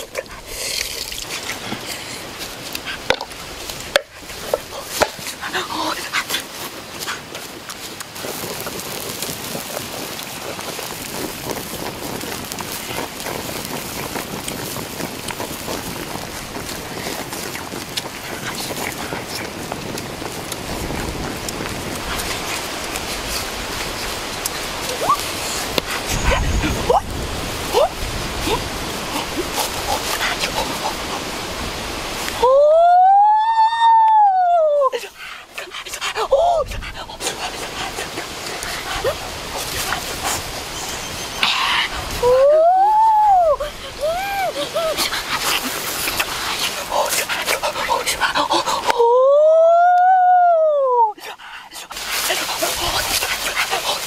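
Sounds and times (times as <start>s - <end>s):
steady hiss: 0.0s - 34.0s, 34.6s - 49.1s, 51.2s - 54.0s
wood fire crackling: 0.0s - 54.0s
boy shouting: 42.2s - 45.0s.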